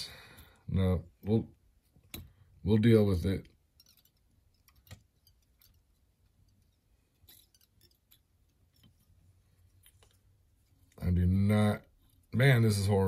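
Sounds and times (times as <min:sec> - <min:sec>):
small clicks and taps: 0:01.8 - 0:02.4, 0:03.4 - 0:11.0.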